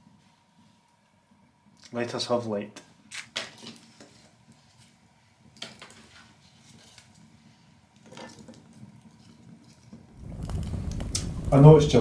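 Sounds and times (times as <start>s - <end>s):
wood fire crackling: 1.6s - 12.0s
fire popping: 3.0s - 12.0s.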